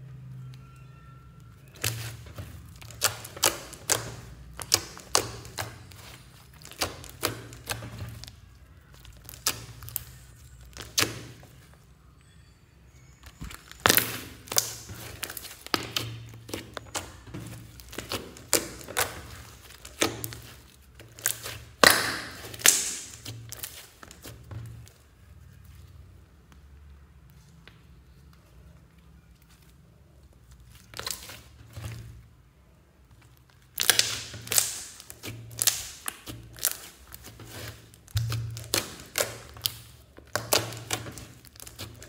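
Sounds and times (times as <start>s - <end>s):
hands kneading slime: 1.6s - 11.7s, 13.2s - 26.6s, 28.0s - 42.0s.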